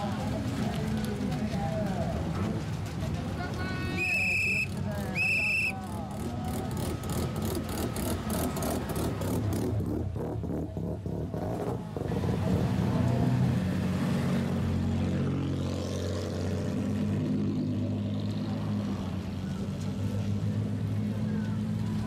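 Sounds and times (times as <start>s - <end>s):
cars with loud exhausts passing: 0.0s - 22.0s
engine revving: 5.9s - 22.0s.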